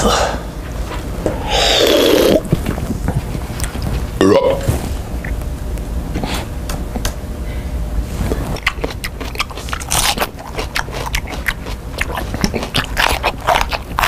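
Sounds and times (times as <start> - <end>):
person crunching crisp food: 8.3 - 14.0.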